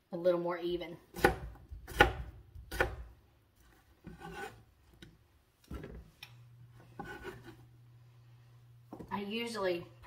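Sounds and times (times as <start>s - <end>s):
low steady hum: 0.9s - 10.0s
knife scraping cutting board: 3.6s - 4.7s, 6.7s - 7.7s.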